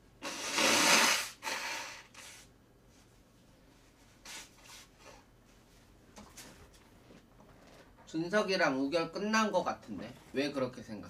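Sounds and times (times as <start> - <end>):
woman blowing her nose: 0.2 - 2.5.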